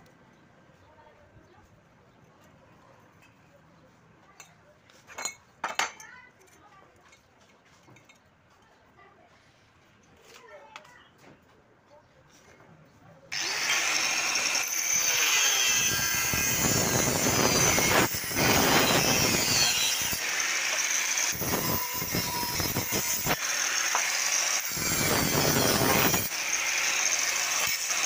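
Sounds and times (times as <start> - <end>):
angle grinder cutting steel: 13.3 - 28.0.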